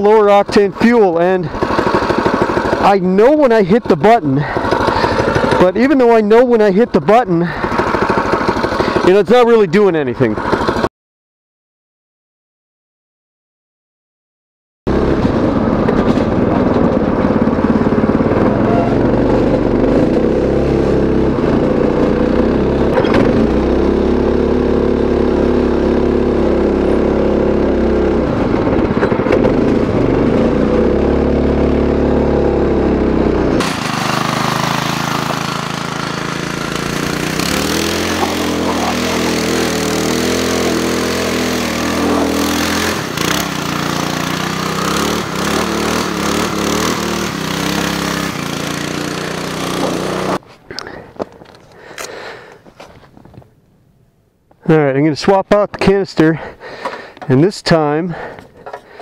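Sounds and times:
go kart engine revving: 0.0s - 10.9s, 14.9s - 51.0s.

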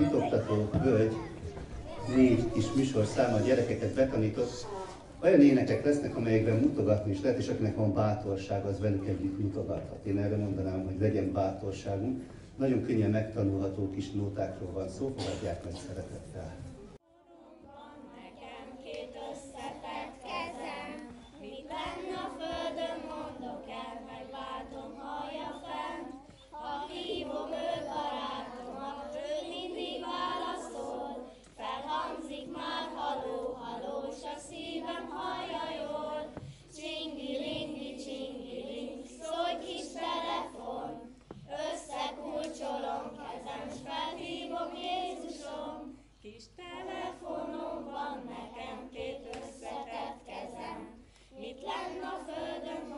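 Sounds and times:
children singing: 17.2s - 46.0s, 46.6s - 52.9s.

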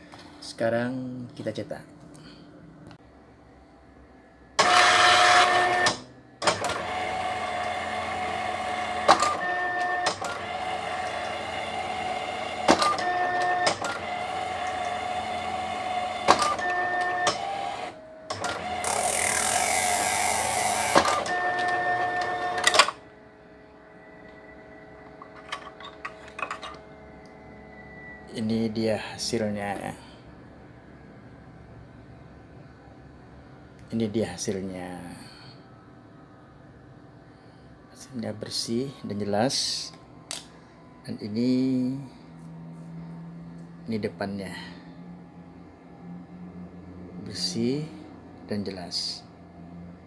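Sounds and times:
printer clicks: 4.6s - 23.0s
card printer whirring: 4.6s - 28.2s.

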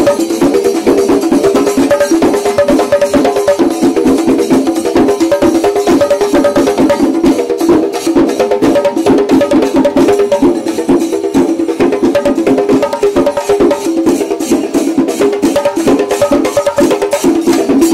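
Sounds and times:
rapid sharp drum strokes: 0.0s - 17.9s.

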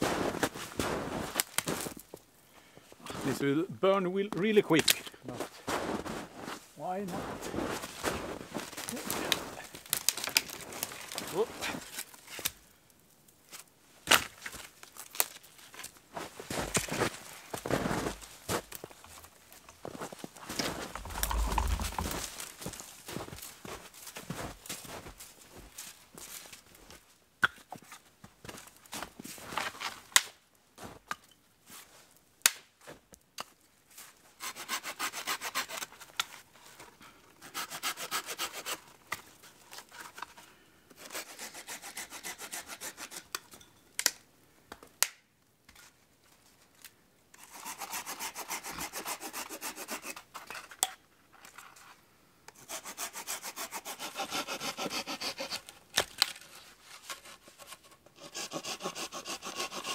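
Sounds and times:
hand saw cutting branches: 20.7s - 22.4s, 34.4s - 36.1s, 37.4s - 38.9s, 41.0s - 43.4s, 47.4s - 50.3s, 52.6s - 59.9s.

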